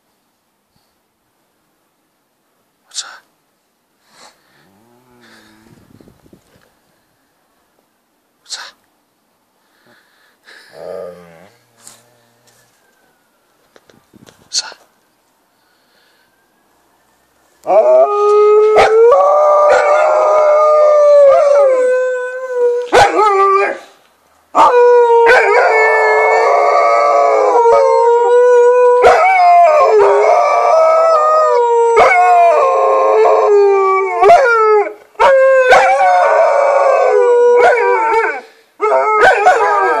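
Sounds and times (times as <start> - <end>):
dogs howling: 17.7 - 23.8, 24.6 - 40.0.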